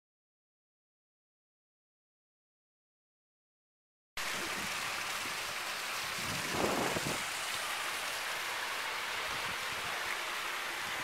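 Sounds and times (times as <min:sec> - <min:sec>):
waterfall splashing into pool: 0:04.2 - 0:11.0.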